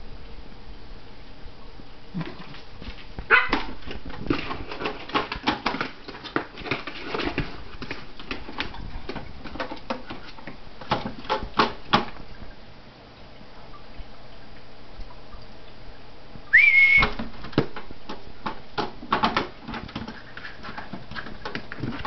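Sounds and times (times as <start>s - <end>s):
small dogs barking and yipping: 3.2s - 3.8s.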